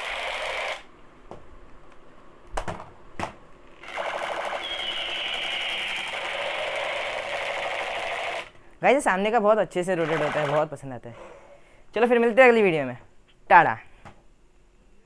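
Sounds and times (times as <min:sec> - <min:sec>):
rapid mechanical rattle: 0:03.8 - 0:04.7
falling electronic tone: 0:04.3 - 0:07.1.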